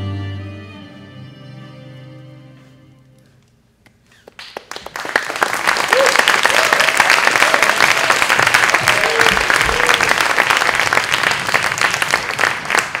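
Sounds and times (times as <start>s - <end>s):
audience applauding: 4.2s - 13.0s
crowd cheering: 4.6s - 13.0s.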